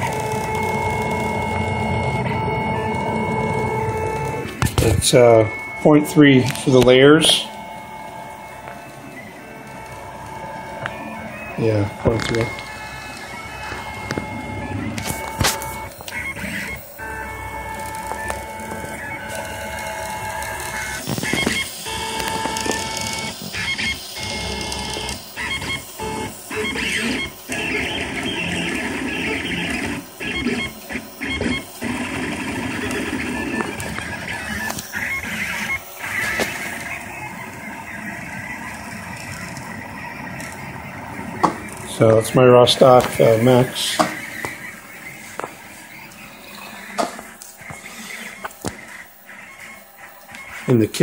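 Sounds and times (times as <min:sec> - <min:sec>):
printer stepper motors whining: 0:00.0 - 0:51.0.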